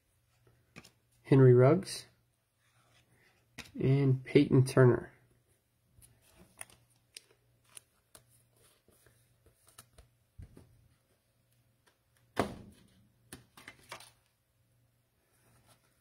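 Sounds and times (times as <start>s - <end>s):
cards clicking and tapping: 13.2s - 14.2s.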